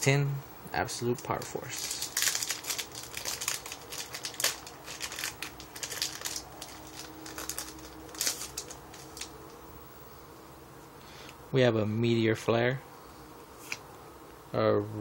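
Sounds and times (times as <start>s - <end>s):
foil wrapper tearing and crinkling: 1.7s - 9.4s.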